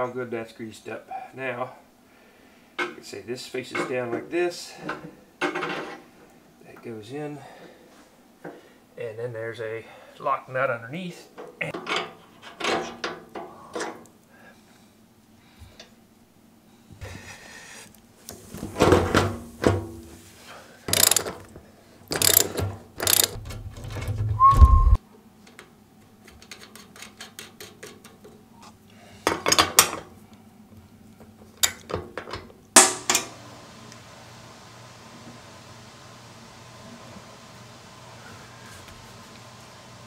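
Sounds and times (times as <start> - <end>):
faint room hiss: 0.0 - 22.1
metal parts and wrench clattering: 20.9 - 21.4, 22.1 - 24.3, 31.6 - 32.0.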